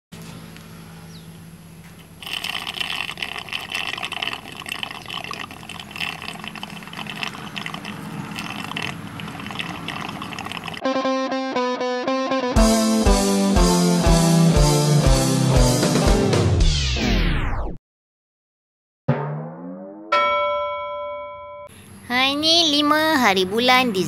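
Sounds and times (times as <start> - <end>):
electric pump humming: 2.0 - 10.8
gurgling slurp of honey and air: 2.2 - 10.8.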